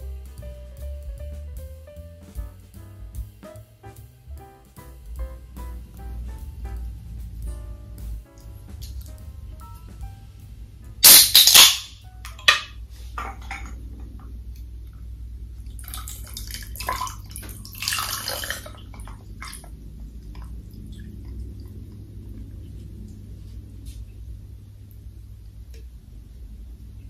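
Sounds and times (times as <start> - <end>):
drink pouring into glass mug: 15.8 - 18.8.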